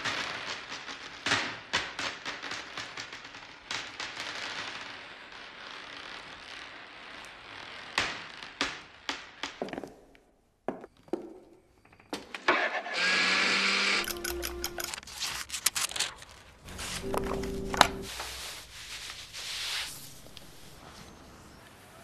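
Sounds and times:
marbles rolling: 13.9s - 16.4s.

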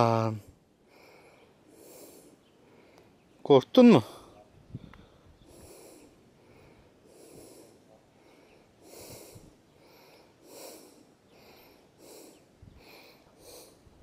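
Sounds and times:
snake hissing: 1.6s - 2.4s, 5.4s - 6.2s, 7.0s - 7.9s, 8.8s - 9.6s, 10.4s - 13.9s.

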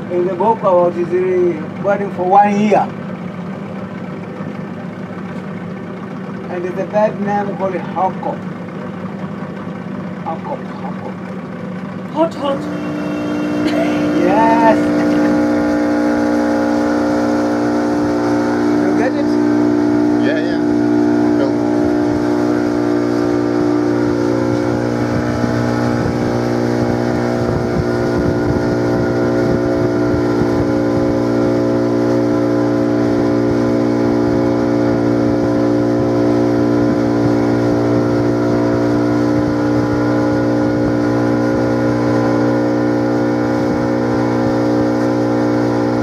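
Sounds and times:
boat motor running: 0.0s - 46.0s.

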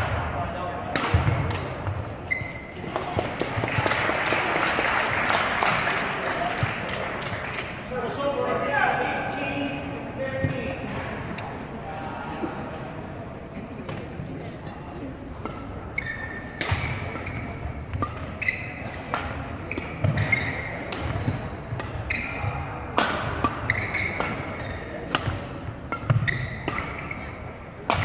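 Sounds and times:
racket hitting shuttlecock: 0.0s - 4.0s, 15.4s - 28.0s
court shoes squeaking: 0.9s - 4.0s, 13.8s - 28.0s.

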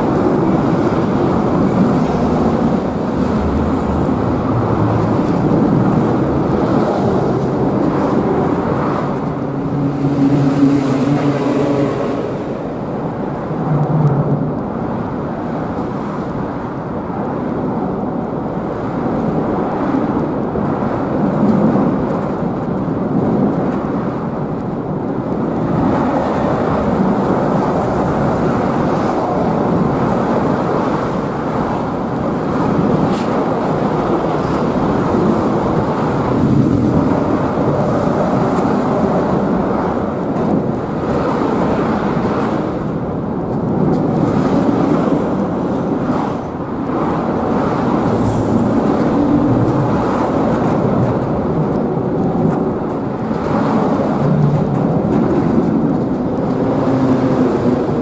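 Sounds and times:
ship engines rumbling: 0.0s - 58.0s
water noise: 0.0s - 58.0s.

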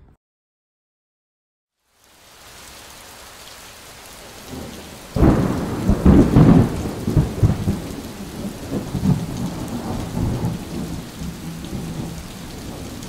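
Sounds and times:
rain hiss: 1.7s - 13.0s
rolling thunder rumble: 4.5s - 13.0s.

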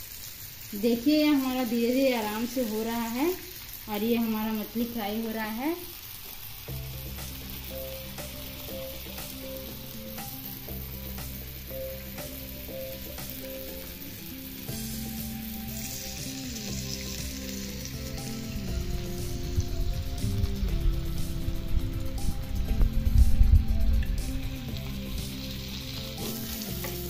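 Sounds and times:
fish sizzling in oil: 0.0s - 27.0s
background music: 6.7s - 27.0s.

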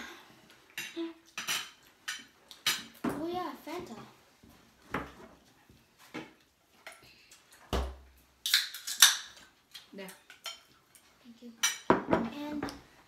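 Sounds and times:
dishes clinking and clattering: 0.7s - 3.3s, 6.2s - 9.5s, 10.2s - 12.7s.

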